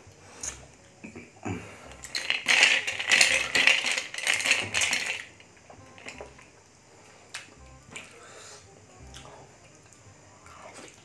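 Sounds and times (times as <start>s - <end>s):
ice clinking in glass jar: 2.1s - 5.3s.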